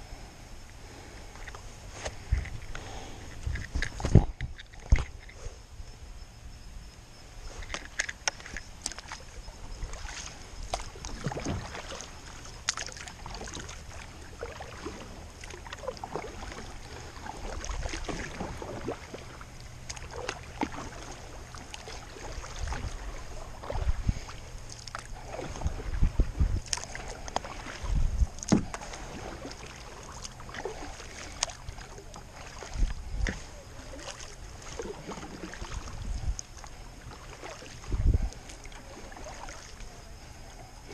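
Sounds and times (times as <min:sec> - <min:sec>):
paddle splashing in water: 0:07.5 - 0:40.9
paddle knocking plastic hull: 0:28.4 - 0:29.4.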